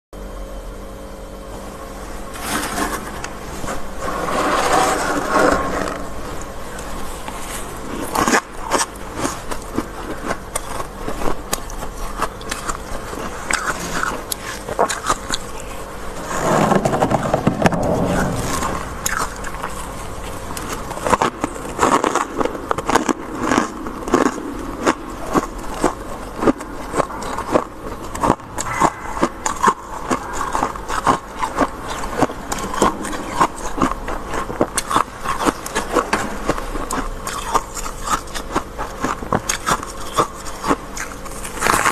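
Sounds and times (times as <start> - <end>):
hand scraping frost: 2.3 - 8.5.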